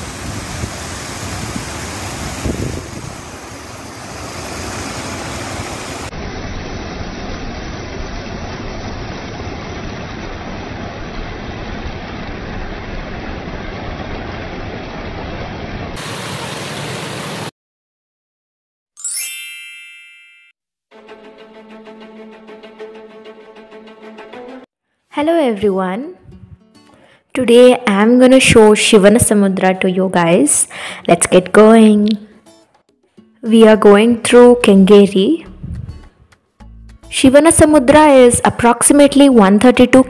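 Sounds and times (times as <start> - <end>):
water rushing over weir: 0.0 - 17.5.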